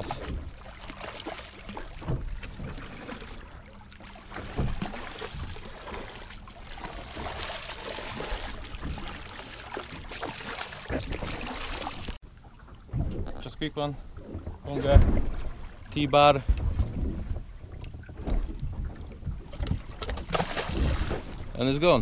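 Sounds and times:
water splashing beside boat: 0:00.0 - 0:22.0
wind on microphone: 0:16.4 - 0:19.9.

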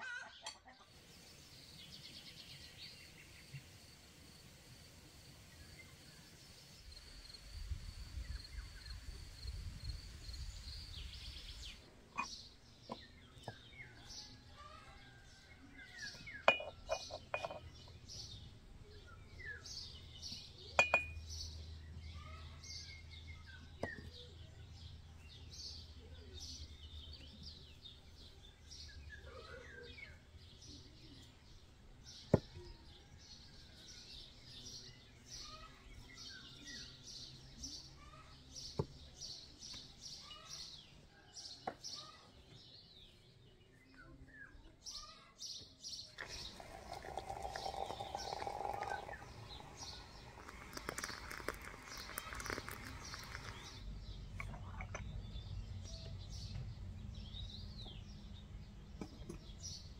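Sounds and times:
small birds chirping: 0:00.4 - 0:59.9
sharp clinks and knocks: 0:16.5 - 0:17.7, 0:20.8 - 0:21.2.

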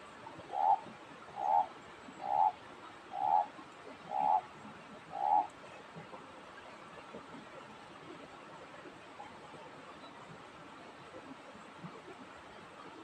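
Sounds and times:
frog croaking: 0:00.5 - 0:00.8, 0:01.4 - 0:03.5, 0:04.1 - 0:04.4, 0:05.1 - 0:05.5.

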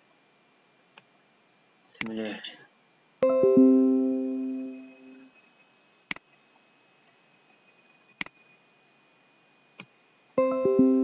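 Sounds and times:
two-note notification chime: 0:03.2 - 0:05.3
computer mouse clicks: 0:08.2 - 0:08.4.

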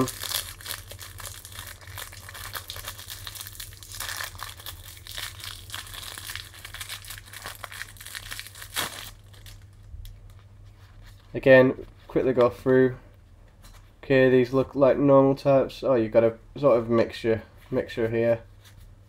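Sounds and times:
plastic bag crinkling: 0:00.0 - 0:10.5.

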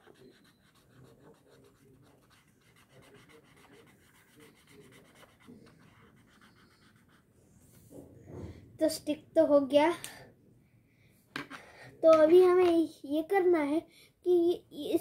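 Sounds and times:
pen scratching on paper: 0:00.0 - 0:07.3.

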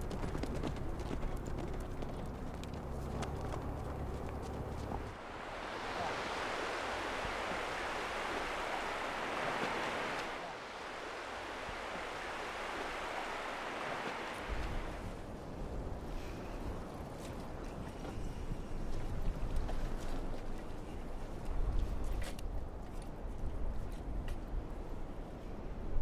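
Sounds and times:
low rumble of wind: 0:00.0 - 0:26.0
surf washing on a beach: 0:05.0 - 0:22.0.

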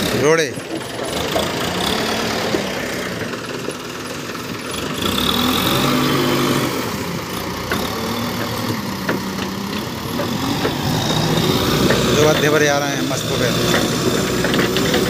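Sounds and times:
diesel engine labouring: 0:00.0 - 0:15.0
bucket pushing into broken bricks: 0:13.4 - 0:15.0.

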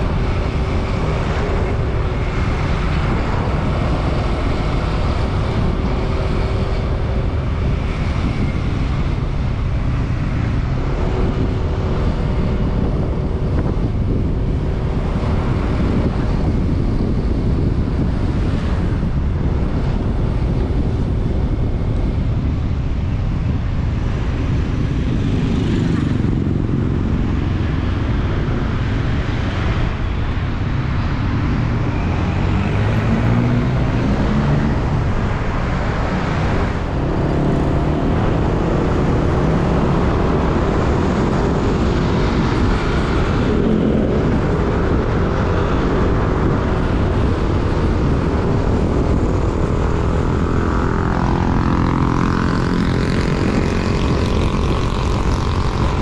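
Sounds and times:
wind rushing over microphone: 0:00.0 - 0:56.0
motorcycle engine running: 0:34.2 - 0:56.0.

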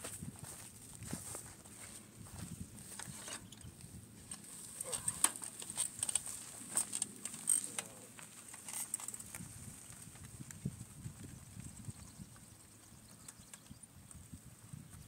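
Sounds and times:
bicycle clicking and rattling: 0:04.3 - 0:11.9.

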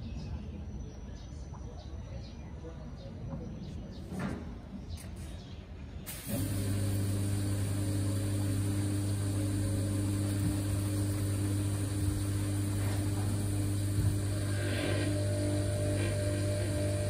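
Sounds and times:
pressure washer pump humming: 0:06.1 - 0:17.0
steady hiss: 0:06.1 - 0:17.0.

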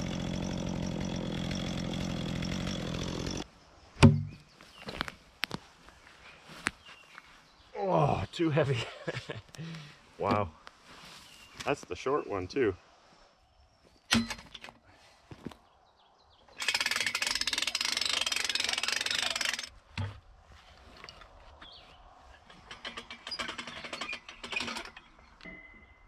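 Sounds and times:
lift jack rapid clatter: 0:00.0 - 0:03.4, 0:16.6 - 0:19.7, 0:22.5 - 0:25.2.

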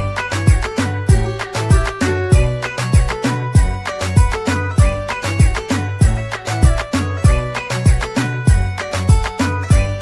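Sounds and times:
sustained melodic notes: 0:01.0 - 0:05.4.

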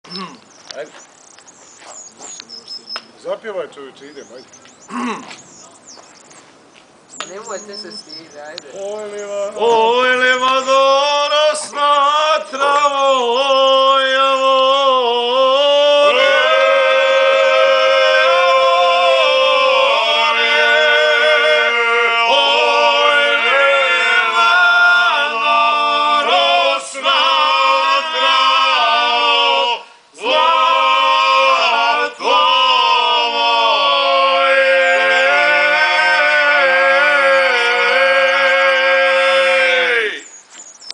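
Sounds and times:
men singing in close harmony: 0:08.7 - 0:40.2.

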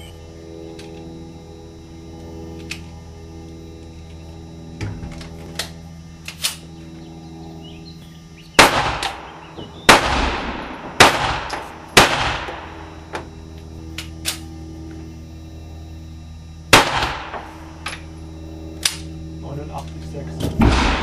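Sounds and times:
steady low hum: 0:00.0 - 0:21.0
pistol shots with echo: 0:08.6 - 0:12.8, 0:16.7 - 0:17.5, 0:20.6 - 0:21.0.

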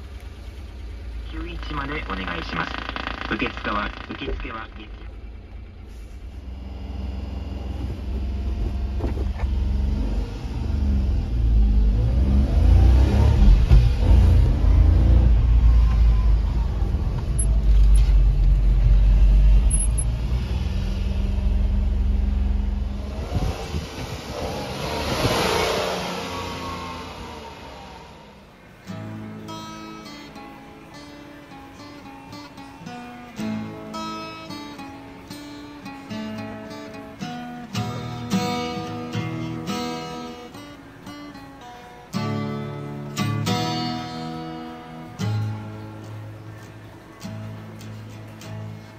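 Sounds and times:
engine drone inside cab: 0:00.0 - 0:35.3
rush of noise: 0:11.5 - 0:28.6
strummed acoustic guitar chords: 0:28.7 - 0:48.9.

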